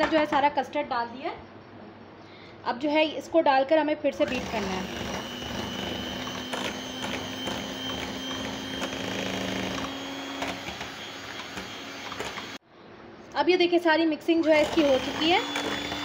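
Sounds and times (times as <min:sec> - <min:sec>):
electric hand mixer whirring: 0:04.2 - 0:12.6, 0:14.4 - 0:16.0
mixer clicks: 0:04.2 - 0:12.6, 0:14.6 - 0:16.0.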